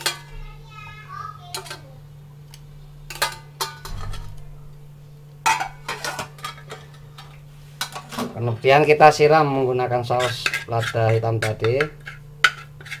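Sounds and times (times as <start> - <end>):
utensil clinking on pan and plate: 0.0 - 0.3, 3.1 - 4.4, 5.4 - 8.2, 10.1 - 13.0.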